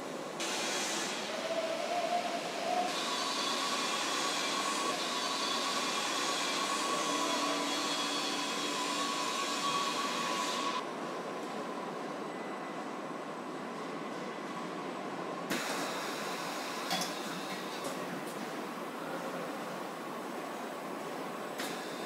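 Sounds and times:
machinery whirring hiss: 0.0 - 10.8, 15.5 - 22.0
faint machine whines: 0.5 - 10.8, 11.7 - 14.8.

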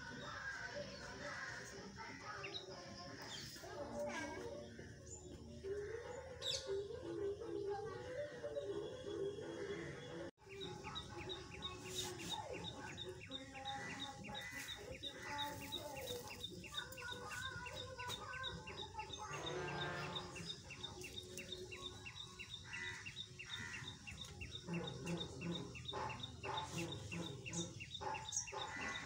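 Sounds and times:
birds chirping: 7.8 - 29.0.

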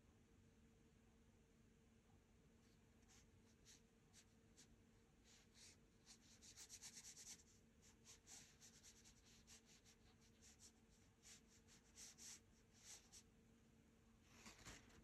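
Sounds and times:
paintbrush strokes on paper: 2.6 - 13.3.

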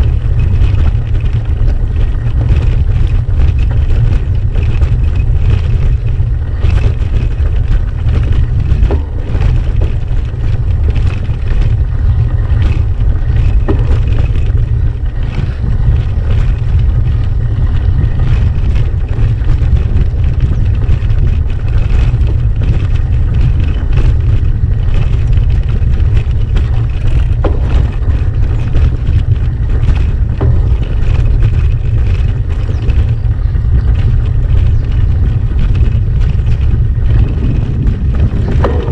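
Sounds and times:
bike rattling over stones: 0.0 - 38.9
wind and vibration rumble: 0.0 - 38.9.

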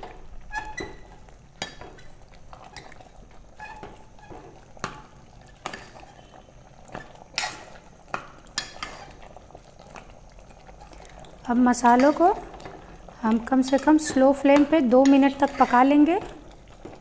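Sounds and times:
metal ladle scraping pot: 0.4 - 4.9, 8.5 - 9.3, 13.4 - 17.0
stirring wet curry: 0.6 - 17.0.

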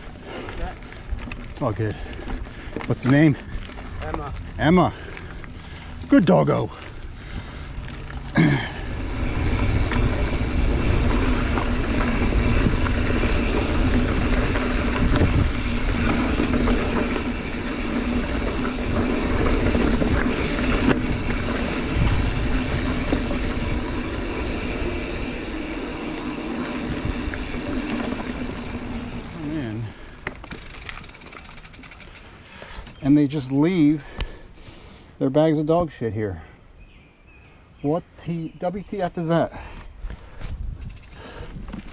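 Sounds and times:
bike tyres rolling on dirt: 0.0 - 41.9
wind rush on microphone: 8.8 - 29.9, 40.0 - 41.9.

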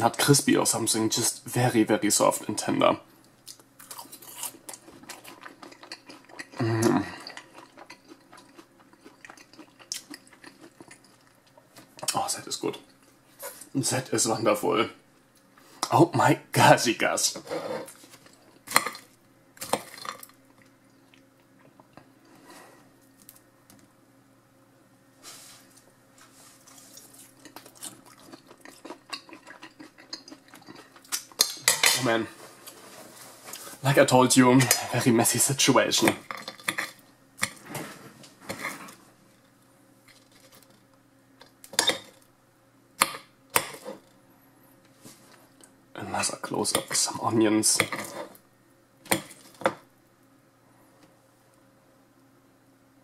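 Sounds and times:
soft chewing: 3.3 - 13.7, 25.7 - 31.6.

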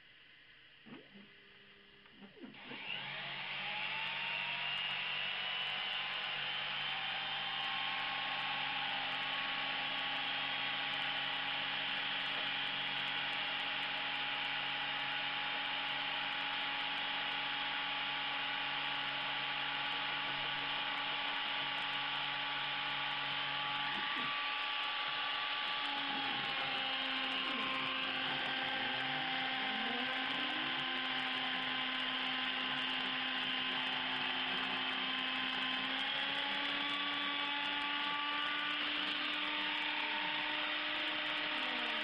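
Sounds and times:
spindle motor whine: 0.0 - 42.0.

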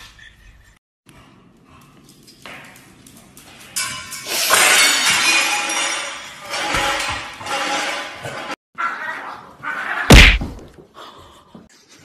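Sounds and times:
glass shattering: 3.8 - 8.2.

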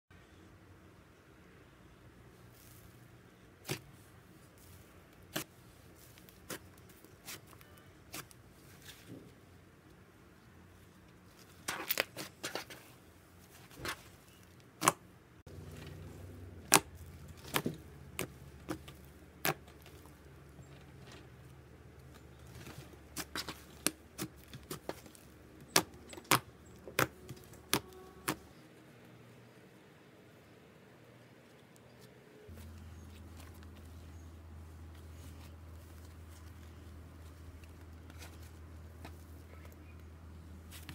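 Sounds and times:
faint handling noise: 15.5 - 28.6, 31.2 - 40.9.

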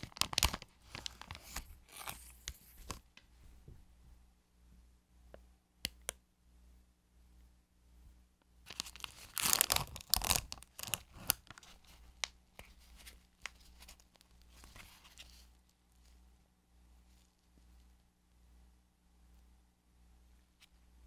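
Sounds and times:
plastic crinkles and clicks: 0.0 - 3.0, 8.7 - 15.8
plastic packaging crackling and tearing: 0.0 - 3.0, 8.7 - 15.5.

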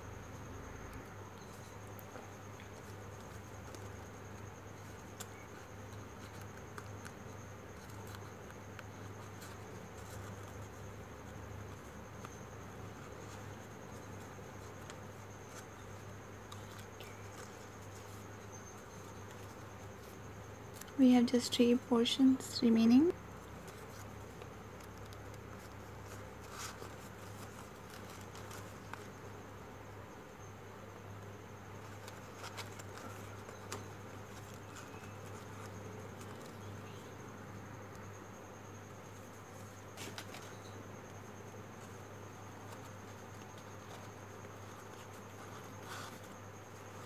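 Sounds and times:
faint high-pitched whine: 0.0 - 47.0
paper clicks and rustles: 0.9 - 21.0, 23.4 - 29.3, 31.2 - 37.0, 39.1 - 40.9.

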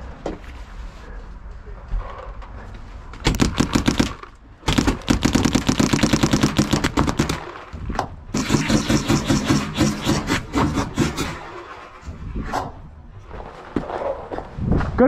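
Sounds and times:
paintball markers firing: 3.2 - 7.5.

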